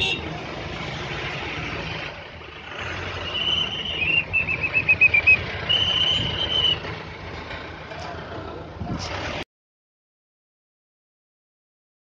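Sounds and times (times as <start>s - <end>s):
high-pitched whistle: 3.2s - 6.8s.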